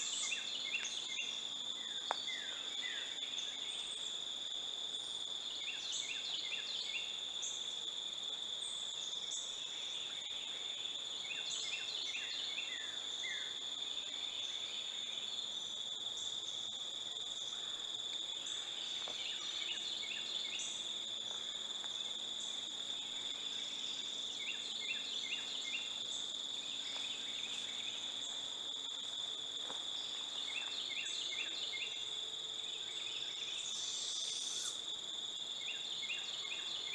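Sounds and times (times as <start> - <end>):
high-pitched insect drone: 30.0 - 34.9.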